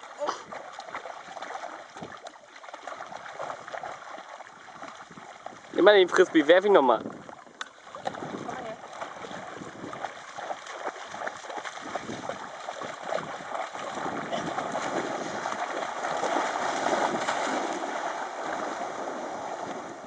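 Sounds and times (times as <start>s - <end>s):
dogs splashing through water: 0.0s - 20.0s.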